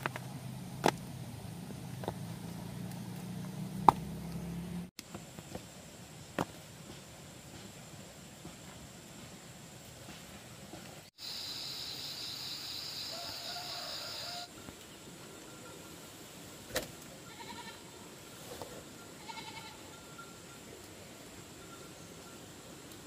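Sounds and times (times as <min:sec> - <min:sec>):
steady high buzz: 0:11.2 - 0:16.5.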